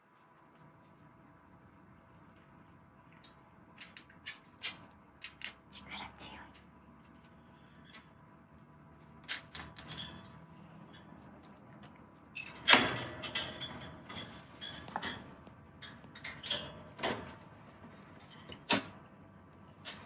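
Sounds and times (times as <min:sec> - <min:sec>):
cat toy rattling wire cage: 0:09.2 - 0:17.4.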